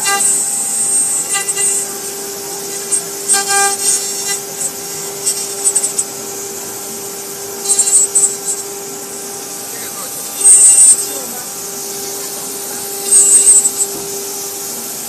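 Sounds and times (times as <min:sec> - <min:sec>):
hissing cutting noise: 0:00.0 - 0:15.0
router spindle high whine: 0:00.0 - 0:15.0.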